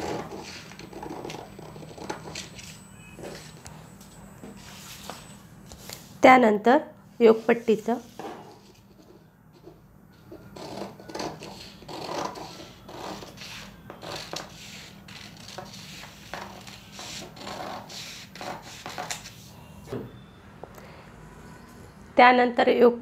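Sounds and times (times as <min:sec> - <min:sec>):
scissors cutting paper: 0:00.0 - 0:02.8, 0:10.6 - 0:19.3.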